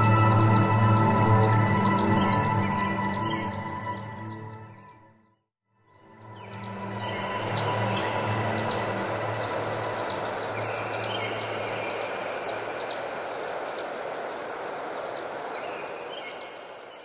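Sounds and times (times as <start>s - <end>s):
rushing river water: 6.2s - 17.0s.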